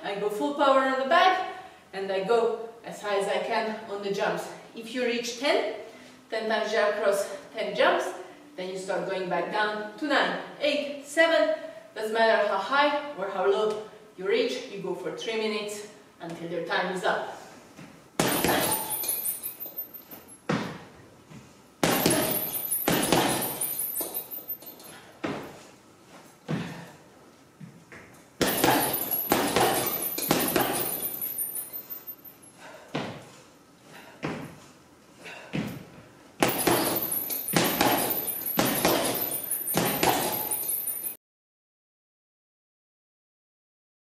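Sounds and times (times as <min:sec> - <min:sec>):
punches thudding on heavy bag: 0:18.2 - 0:19.3, 0:21.8 - 0:24.2, 0:28.4 - 0:31.6, 0:36.4 - 0:40.6
squat-jump landings: 0:18.2 - 0:19.4, 0:21.8 - 0:24.3, 0:27.6 - 0:31.6, 0:34.1 - 0:40.6
noisy gym background: 0:18.2 - 0:20.4, 0:21.8 - 0:25.4, 0:28.4 - 0:33.1, 0:35.2 - 0:41.2
bag fittings rattling: 0:28.4 - 0:32.4
jump landing thuds: 0:36.4 - 0:40.6.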